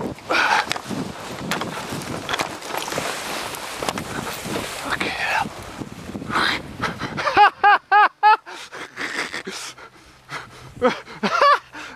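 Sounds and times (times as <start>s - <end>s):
breathy rustling noise: 0.2s - 7.4s.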